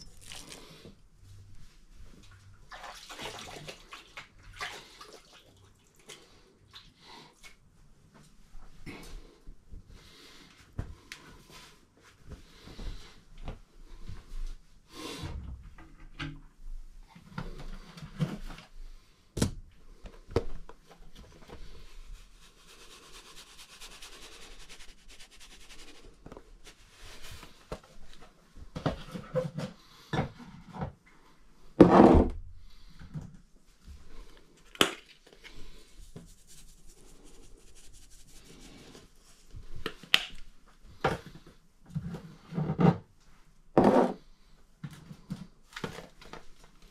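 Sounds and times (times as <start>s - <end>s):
hissy shaking of seasoning: 22.0s - 26.2s, 36.0s - 39.0s.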